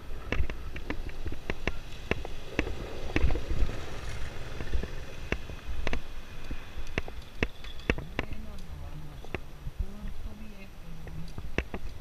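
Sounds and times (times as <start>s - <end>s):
bicycle rattling: 0.0s - 8.6s.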